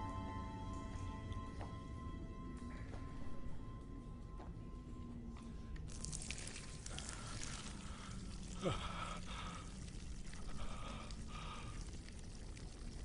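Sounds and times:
liquid splashing onto dirt: 0:05.9 - 0:08.6.

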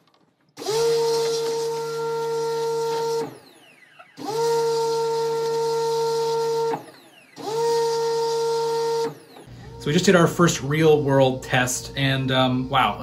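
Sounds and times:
pressure washer spraying: 0:00.6 - 0:03.5, 0:04.2 - 0:09.3.

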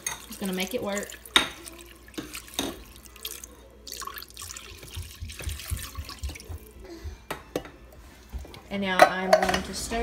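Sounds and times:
broth pouring into a pot: 0:00.0 - 0:06.7.

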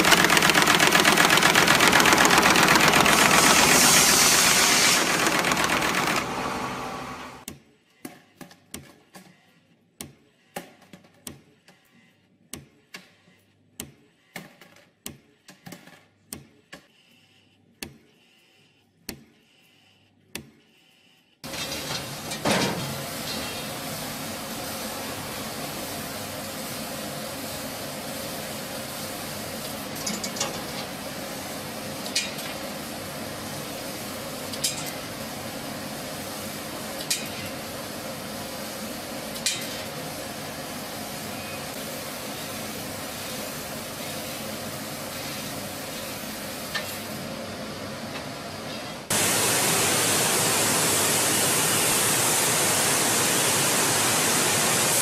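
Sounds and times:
glass forming machine rushing: 0:00.0 - 0:07.4
laser cutting machine hissing: 0:00.0 - 0:07.5, 0:22.9 - 0:47.2, 0:49.1 - 0:55.0.

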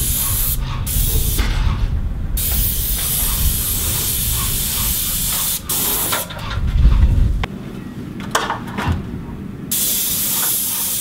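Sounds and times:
paint spray gun hissing: 0:00.0 - 0:01.8, 0:02.4 - 0:06.3, 0:09.7 - 0:11.0
low rumble: 0:00.0 - 0:08.1.

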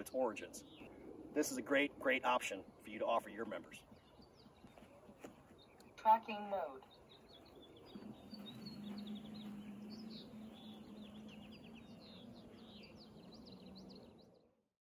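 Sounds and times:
birds chirping and trilling: 0:00.0 - 0:14.7
electric motors humming: 0:07.6 - 0:14.2.

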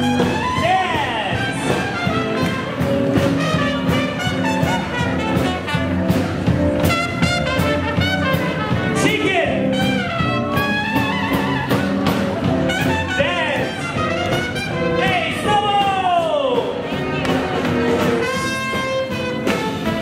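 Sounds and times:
double bass: 0:00.0 - 0:20.0
drums: 0:00.0 - 0:20.0
swing jazz band playing: 0:00.0 - 0:20.0
trumpet: 0:00.0 - 0:20.0.

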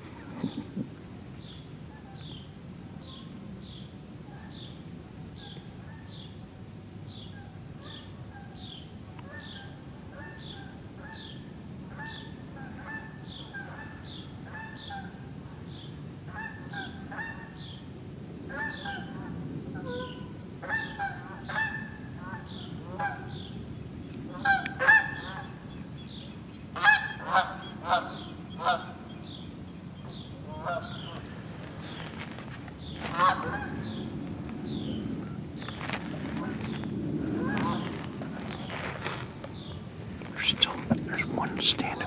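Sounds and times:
geese honking: 0:33.1 - 0:33.7.

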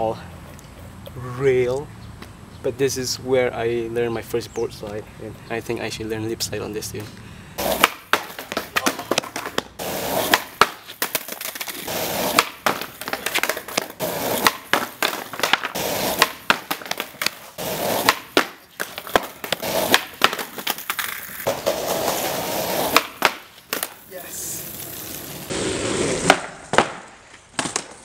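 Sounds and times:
skateboard wheels rolling on concrete: 0:00.0 - 0:28.0
skateboard clacks on wooden rail: 0:07.6 - 0:09.7, 0:10.3 - 0:21.7, 0:22.9 - 0:24.0.

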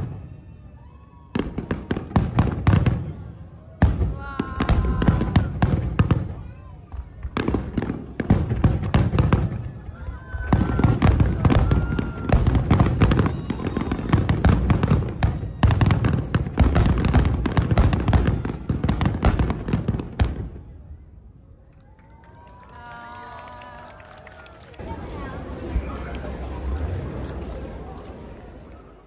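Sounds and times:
fireworks bursting with booms: 0:01.2 - 0:20.7
fireworks crackling: 0:22.5 - 0:29.0.

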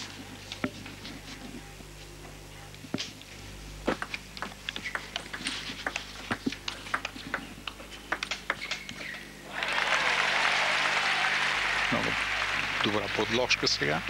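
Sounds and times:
table tennis ball clicking: 0:04.0 - 0:09.0
crowd applauding: 0:09.5 - 0:14.0.

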